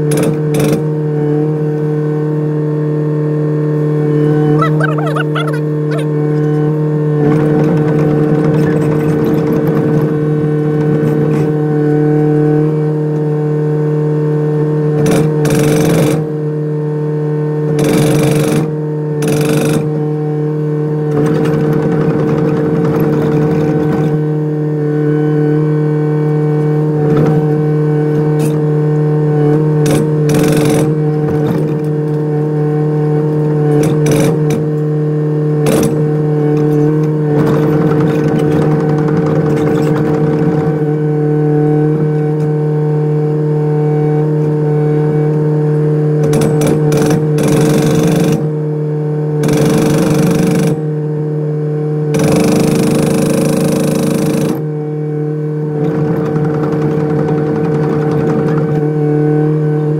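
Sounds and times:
excavator diesel engine humming: 0:03.4 - 0:10.0
hydraulic breaker hammering: 0:46.2 - 0:48.5, 0:49.4 - 0:50.8, 0:52.1 - 0:54.7.

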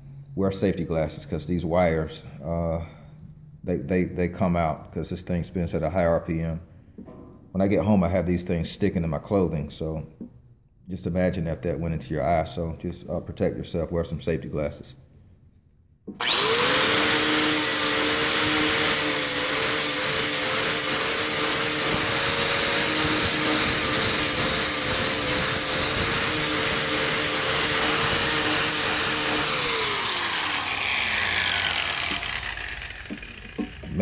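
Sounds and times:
wire wheel grinder scrubbing metal: 0:16.2 - 0:34.0.

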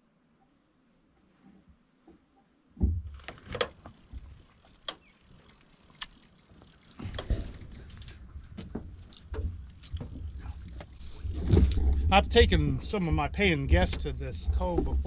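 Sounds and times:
low rumble: 0:07.1 - 0:15.0.

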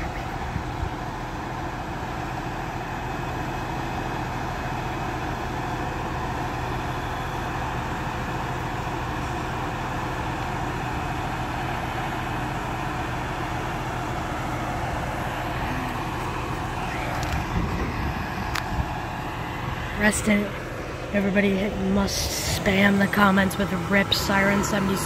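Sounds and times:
truck engine idling: 0:00.0 - 0:25.0.

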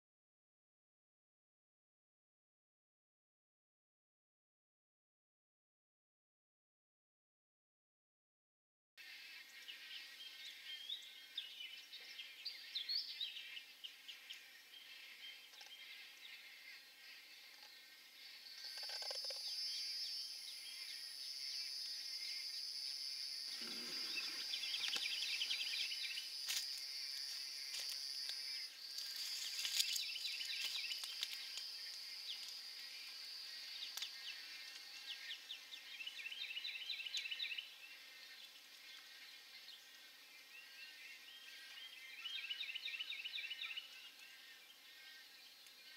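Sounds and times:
high-pitched insect drone: 0:18.5 - 0:35.2
nestlings chattering calls: 0:23.5 - 0:32.6.

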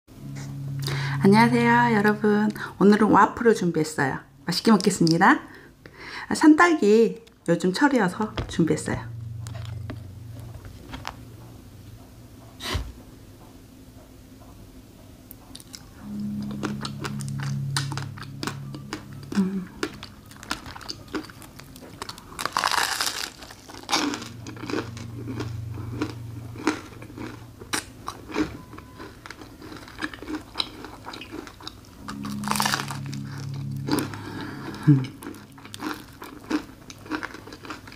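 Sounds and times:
low hum: 0:00.1 - 0:05.0, 0:07.7 - 0:14.4, 0:15.4 - 0:37.9
crunching waffle bites: 0:19.3 - 0:34.2, 0:35.2 - 0:37.9.

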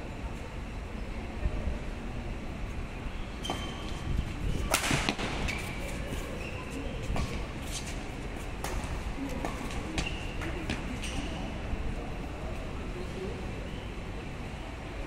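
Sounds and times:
shoes squeaking on court: 0:03.4 - 0:04.1, 0:05.2 - 0:08.0, 0:09.4 - 0:11.4
rackets striking shuttlecock: 0:04.7 - 0:05.4.

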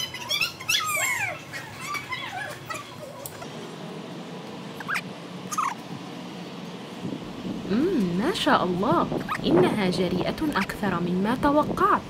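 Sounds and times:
toddler squealing and giggling: 0:00.0 - 0:03.2, 0:04.9 - 0:05.8.

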